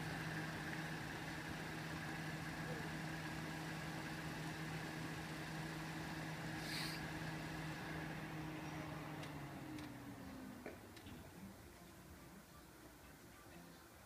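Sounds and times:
engine idling hum: 0.0 - 14.0
brief hiss: 6.6 - 7.1.

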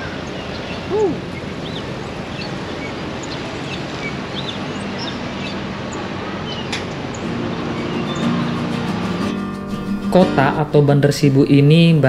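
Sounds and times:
small birds chirping: 0.0 - 9.5
street noise: 0.0 - 12.0.

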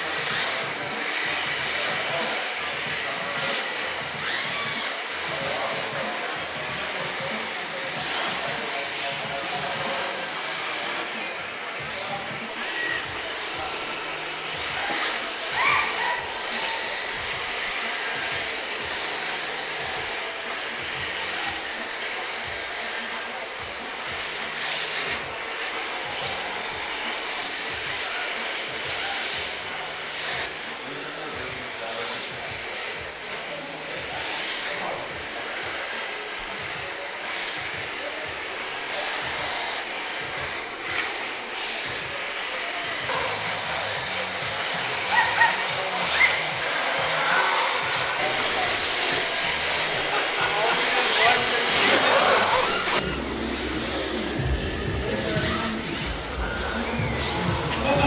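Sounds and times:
rc car motors whirring: 0.0 - 58.0
tyres sliding on track: 42.9 - 53.0.

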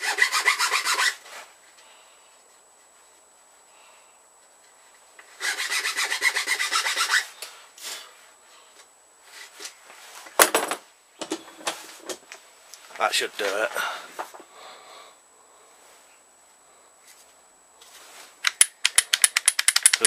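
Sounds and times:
file rasping on wood: 0.0 - 1.2, 5.4 - 7.3.

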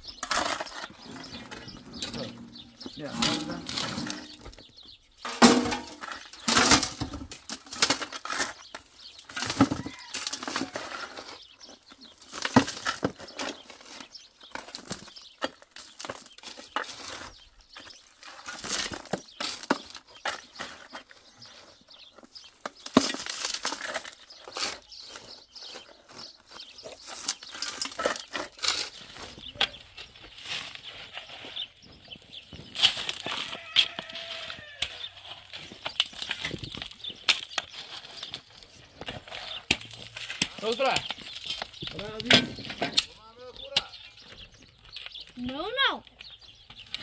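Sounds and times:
shovels scraping stony soil: 0.0 - 47.0
stones clattering in wheelbarrow: 0.0 - 47.0.

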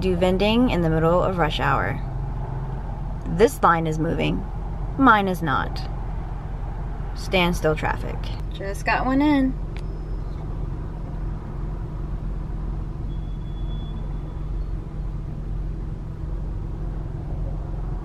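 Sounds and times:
car engine and road noise: 0.0 - 18.0.

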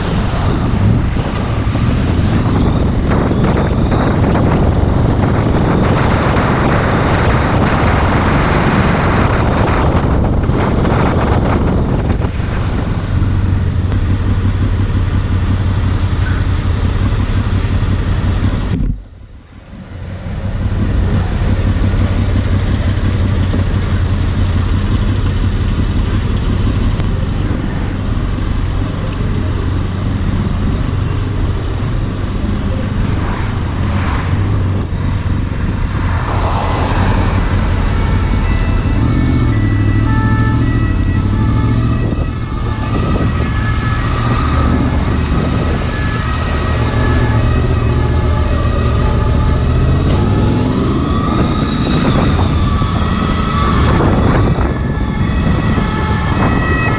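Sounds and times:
motorcycle engine: 0.0 - 56.1
wind rumble: 0.0 - 56.9
ambulance siren: 35.2 - 56.9.

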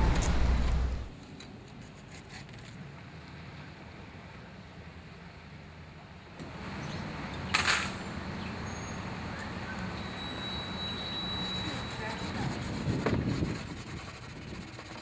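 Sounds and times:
street traffic rumbling: 0.0 - 1.2, 2.8 - 13.6
thin high whine: 9.9 - 12.4.

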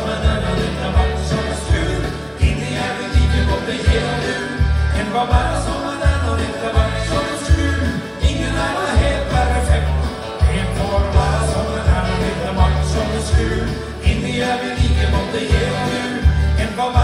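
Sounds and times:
backing music with bass and drums: 0.0 - 17.0
man singing into microphone: 0.0 - 17.0.

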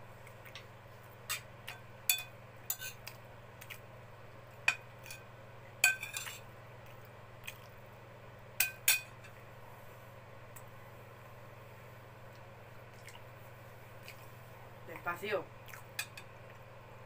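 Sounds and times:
cutlery clinking on a plate: 1.3 - 3.0, 5.8 - 6.4, 8.6 - 9.3.

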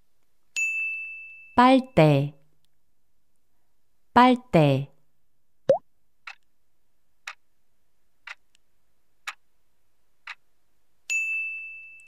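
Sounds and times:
clock-like ticks: 6.2 - 6.4, 7.2 - 7.4, 8.2 - 8.4, 9.2 - 9.4, 10.2 - 10.4.

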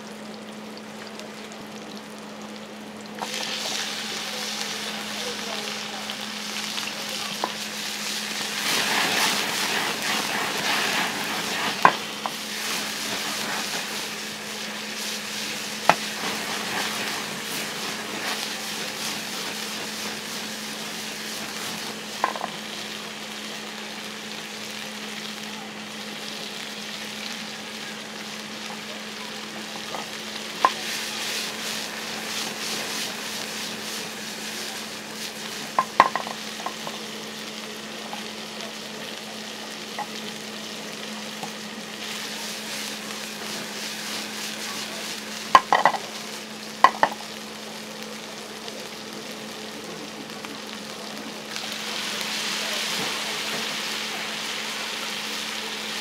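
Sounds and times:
meat sizzling in a frying pan: 0.0 - 56.0
utensil striking pan: 11.6 - 13.7, 21.4 - 22.6, 35.7 - 37.0, 45.5 - 46.2, 46.8 - 47.2.

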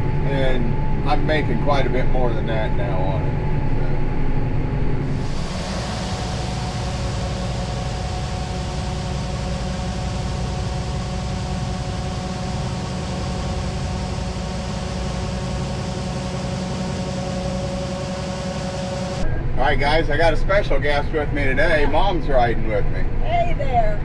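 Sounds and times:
combine harvester drone: 0.0 - 23.2
machine whine: 0.0 - 23.2
machine hiss: 5.2 - 19.2.

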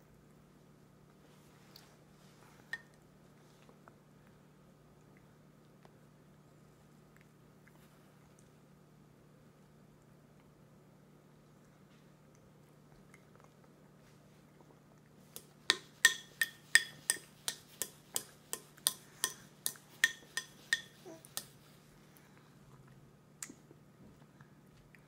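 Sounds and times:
plastic fork tapping plastic container: 15.7 - 21.5.

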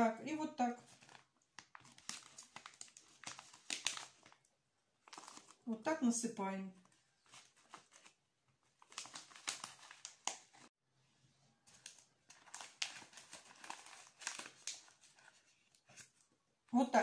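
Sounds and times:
plastic sachet crinkling: 0.8 - 5.7, 6.8 - 10.7, 11.7 - 16.2.

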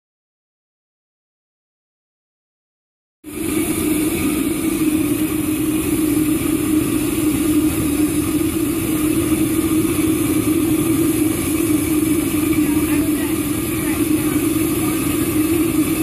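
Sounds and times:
pulse jet engine droning: 3.2 - 16.0
hiss of rushing air: 3.3 - 16.0.

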